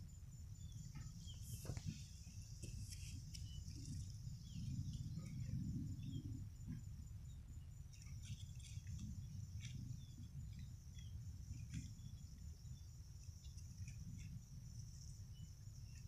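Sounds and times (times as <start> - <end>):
insects trilling: 0.0 - 16.0
low rumble: 0.7 - 15.5.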